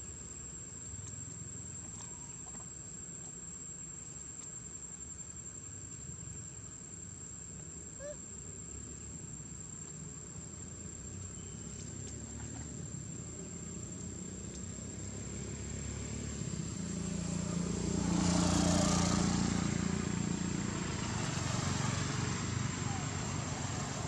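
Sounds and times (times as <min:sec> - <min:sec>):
high-pitched insect trill: 0:00.0 - 0:24.0
vehicle passing: 0:11.6 - 0:24.0.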